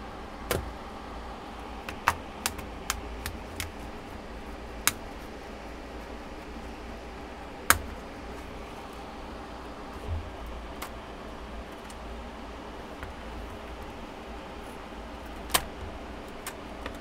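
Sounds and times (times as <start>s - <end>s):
sharp plastic clicks: 1.8s - 4.0s, 4.7s - 5.3s, 15.3s - 17.0s.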